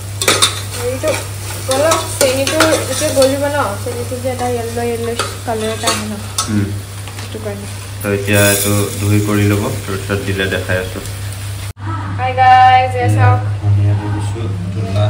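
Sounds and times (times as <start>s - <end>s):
food sizzling in a pot: 0.0s - 11.8s
metal spoon scraping a pot: 0.2s - 3.5s.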